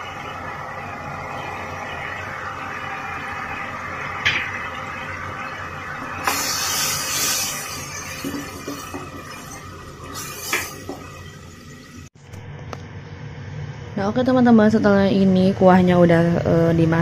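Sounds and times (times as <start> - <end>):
broth bubbling in a wok: 0.0 - 12.2
ladle stirring and sloshing: 6.1 - 11.9.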